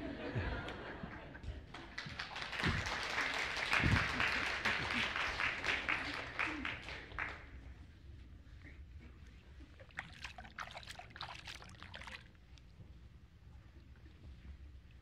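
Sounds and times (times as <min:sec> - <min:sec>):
water splashing and trickling: 0:09.6 - 0:12.8.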